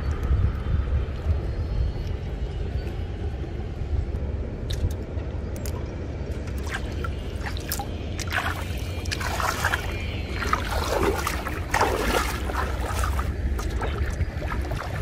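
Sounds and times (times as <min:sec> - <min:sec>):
low rumble: 0:00.0 - 0:15.0
water splashing and dripping: 0:06.5 - 0:15.0
person wading through water: 0:06.6 - 0:15.0.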